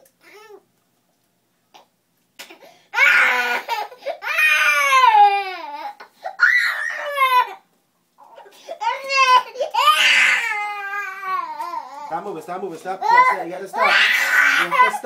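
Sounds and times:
toddler crying: 3.0s - 7.6s, 8.2s - 12.2s, 13.0s - 15.0s.

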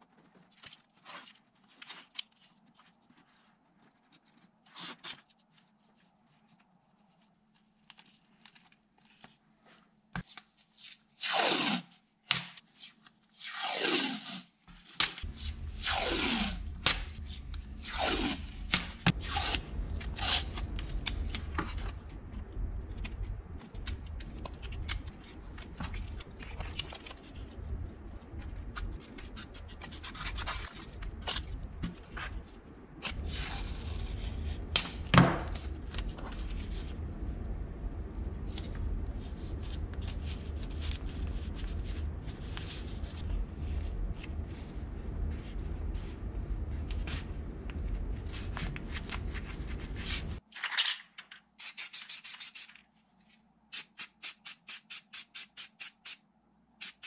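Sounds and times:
tape tearing and crinkling: 10.2s - 22.1s
steady low hum: 15.2s - 50.4s.

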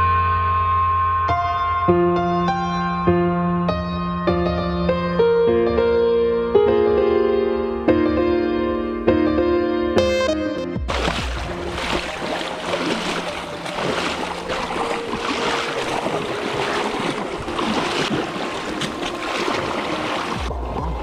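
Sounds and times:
people wading through water: 10.9s - 21.0s.

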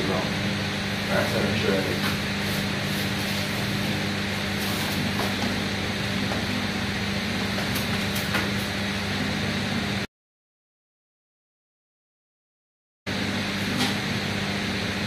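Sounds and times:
mechanical room hum: 0.0s - 10.1s, 13.1s - 15.0s.

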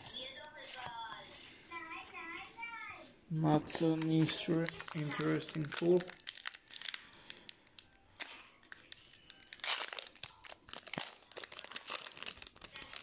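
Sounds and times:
foil wrapper crinkling: 3.7s - 13.0s.

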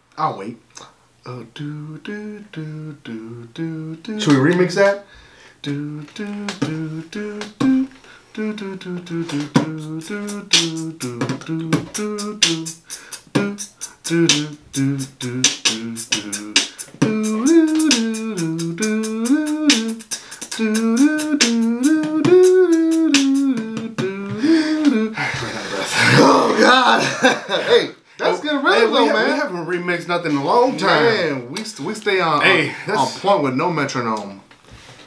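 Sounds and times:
hummed wordless melody: 0.7s - 4.8s, 5.6s - 26.7s
beatboxing mouth clicks and pops: 5.7s - 7.9s, 8.5s - 25.0s.

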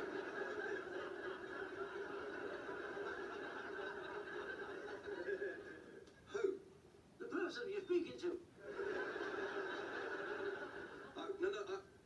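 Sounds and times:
audience laughter: 0.0s - 6.0s, 8.6s - 11.2s.

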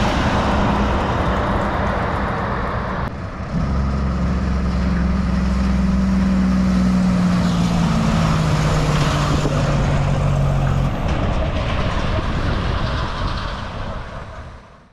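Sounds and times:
trailers rattling: 0.0s - 14.9s
truck engine drone: 0.0s - 14.9s.

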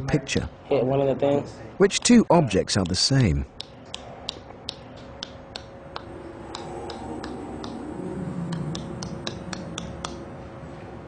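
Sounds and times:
tongue clicks: 3.6s - 7.8s, 8.5s - 10.2s.

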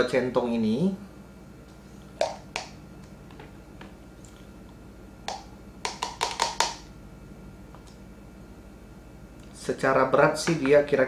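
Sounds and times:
metal ladle knocking plastic cup: 5.3s - 6.8s.

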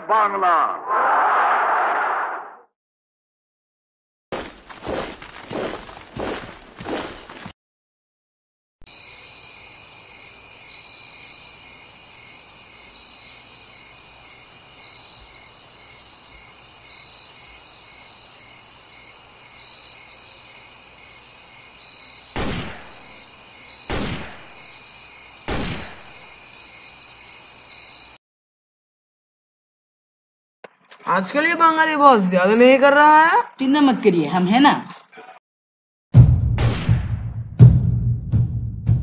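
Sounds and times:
crickets trilling: 8.9s - 28.2s
sharp loud bangs: 22.4s - 23.1s, 23.9s - 24.7s, 25.5s - 26.2s, 36.2s - 37.9s.

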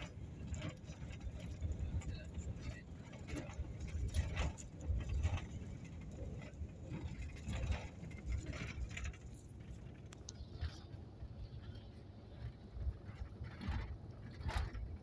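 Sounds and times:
rattles and knocks: 0.0s - 10.8s
road and engine rumble: 0.0s - 15.0s.

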